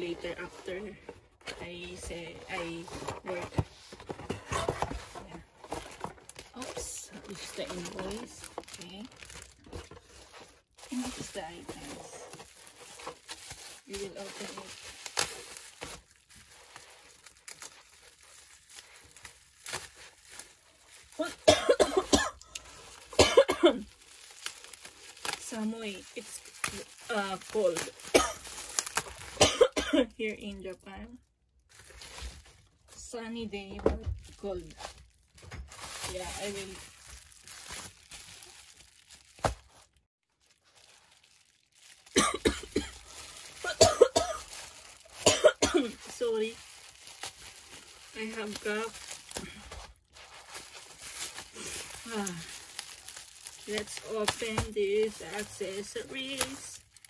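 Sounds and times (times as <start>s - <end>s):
bubble wrap crinkling: 0.0s - 57.0s
woman coughing: 21.2s - 22.5s, 23.2s - 23.9s, 28.1s - 28.5s, 29.4s - 30.1s, 42.1s - 44.5s, 45.2s - 46.0s.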